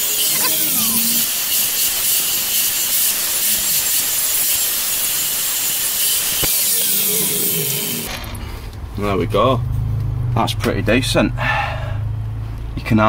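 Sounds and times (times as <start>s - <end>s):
angle grinder grinding steel: 0.0s - 8.4s.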